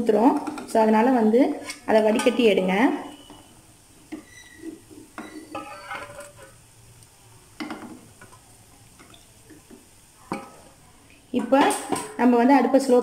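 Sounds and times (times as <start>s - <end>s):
metal skimmer clinking and scraping: 5.2s - 6.6s.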